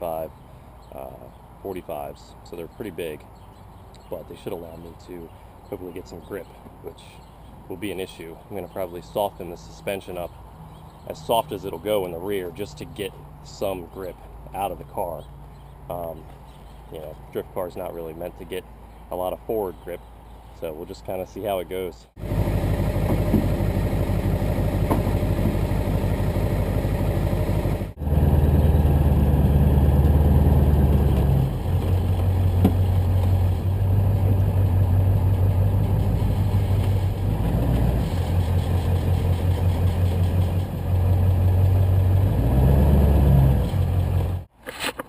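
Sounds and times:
pickup truck engine running: 0:22.2 - 0:44.4.

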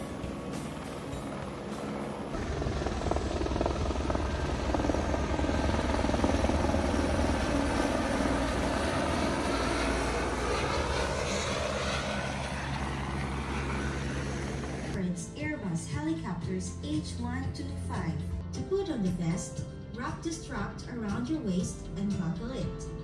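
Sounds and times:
helicopter engine and rotor: 0:00.0 - 0:15.0.

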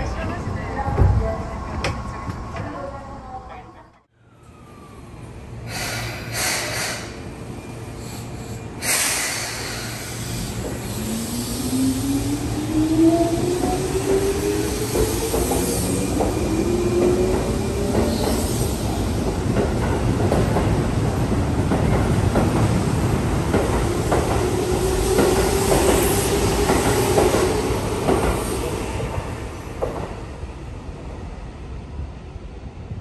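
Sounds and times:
train rumble: 0:05.2 - 0:31.2.

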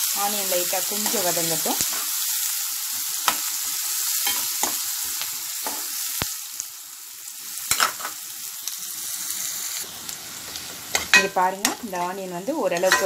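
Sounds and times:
onions sizzling in hot oil: 0:00.0 - 0:13.0
spoon scraping a pan: 0:10.5 - 0:13.0.

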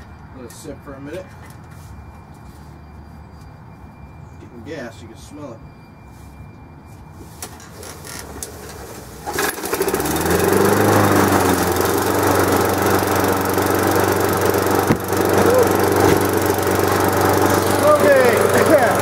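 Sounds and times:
lawn mower engine starting: 0:07.7 - 0:19.0.

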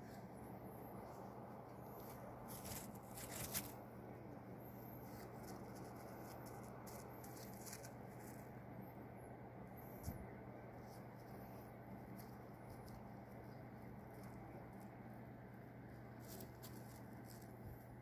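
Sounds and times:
clothing rustling and handling noise: 0:00.0 - 0:03.8
steady low hum: 0:00.0 - 0:18.0.

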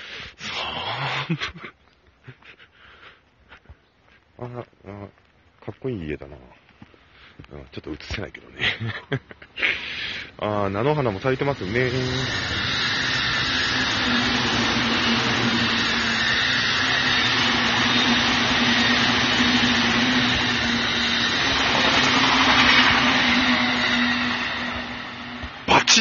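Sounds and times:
steady train hum: 0:06.3 - 0:26.0
train wheels rushing on rail: 0:08.0 - 0:26.0.

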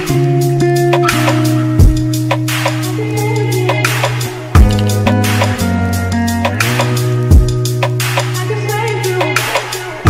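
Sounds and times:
music with steady beat: 0:00.0 - 0:10.0
heavy kick drum: 0:01.8 - 0:02.5, 0:04.6 - 0:05.6, 0:07.3 - 0:08.0.

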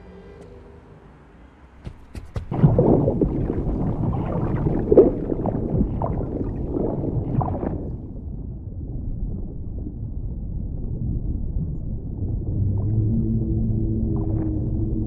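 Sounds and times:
sharp taps: 0:01.8 - 0:02.8
underwater rushing water: 0:01.8 - 0:15.0.

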